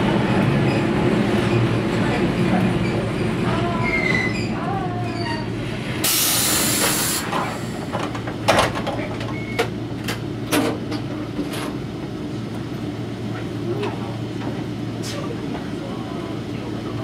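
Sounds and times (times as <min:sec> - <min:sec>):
compressed air hiss: 0:06.0 - 0:07.3.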